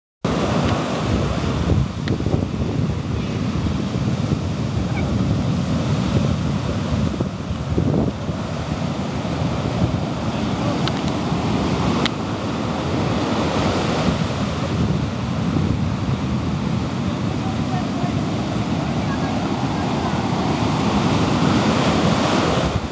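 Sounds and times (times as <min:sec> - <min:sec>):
ocean surf breaking: 0:00.3 - 0:22.9
wind rumbling on microphone: 0:00.3 - 0:22.9.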